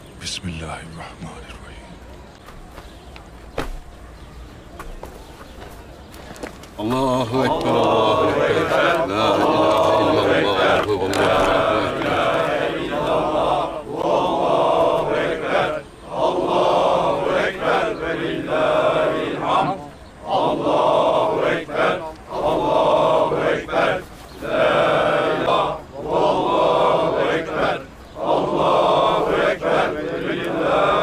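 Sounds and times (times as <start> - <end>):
men chanting a devotional melody: 6.8 - 31.0.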